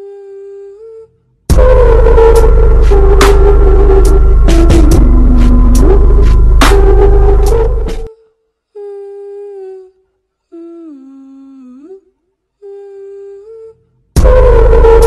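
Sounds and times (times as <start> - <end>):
person humming slow notes: 0.0 - 15.0
loud music: 1.5 - 8.1, 14.2 - 15.0.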